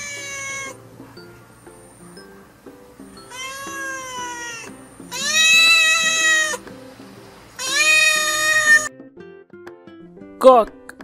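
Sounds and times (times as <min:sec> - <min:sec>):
cat meowing: 0:00.0 - 0:00.8, 0:03.2 - 0:06.7, 0:07.6 - 0:08.9.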